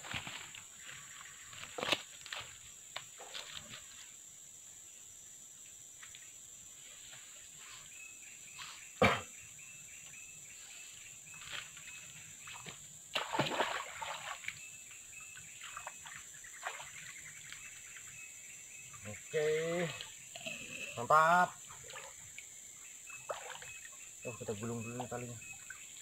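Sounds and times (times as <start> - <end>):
water splashing: 12.4 - 14.7, 15.5 - 17.3, 21.4 - 26.0.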